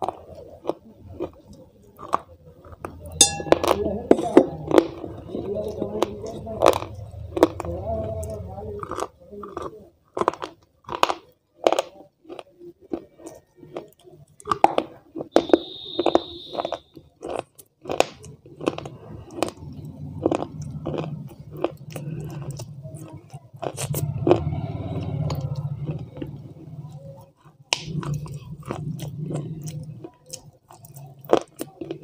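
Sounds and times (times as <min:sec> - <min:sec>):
chewing ice: 0:00.0 - 0:32.0
high steady tone: 0:03.2 - 0:04.4.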